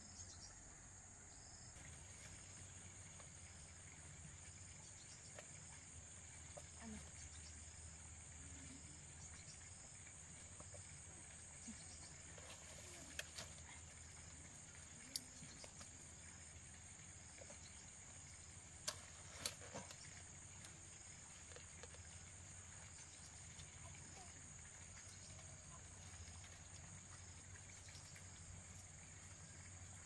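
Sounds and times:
high-pitched insect chorus: 0.0 - 30.0.

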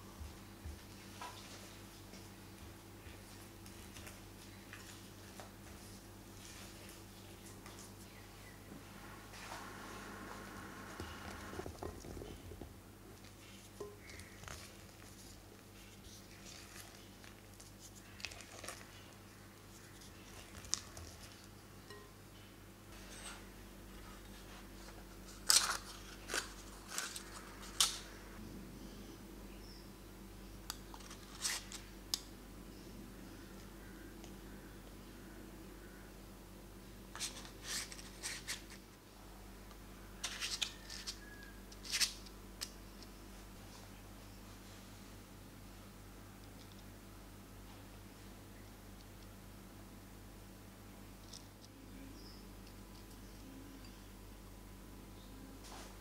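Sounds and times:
paper liners crinkling: 13.2 - 21.5, 24.8 - 28.1.

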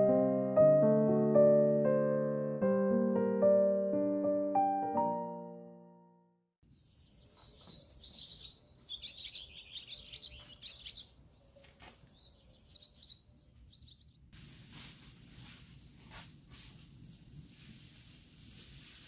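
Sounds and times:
small birds chirping: 6.6 - 14.4
rustling hiss: 14.2 - 19.0.

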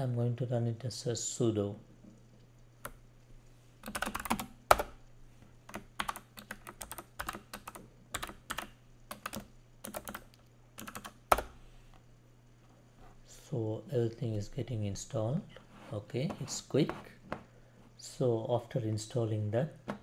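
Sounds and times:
faint low hum: 0.0 - 20.0
keyboard typing: 3.8 - 5.0, 5.7 - 11.6.

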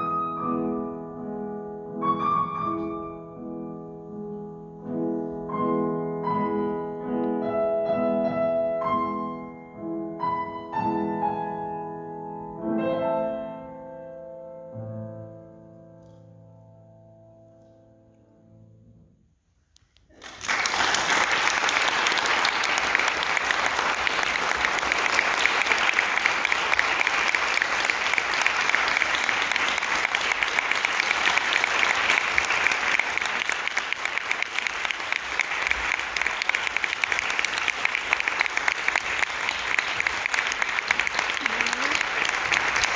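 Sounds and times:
audience applause: 20.1 - 42.9.

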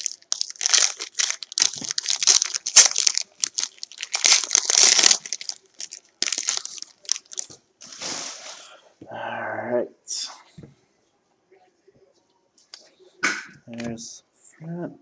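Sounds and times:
foil wrapper crinkling: 0.0 - 8.6.

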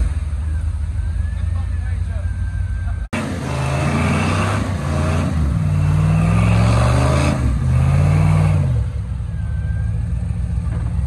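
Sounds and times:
engine revving hard: 3.2 - 9.0.

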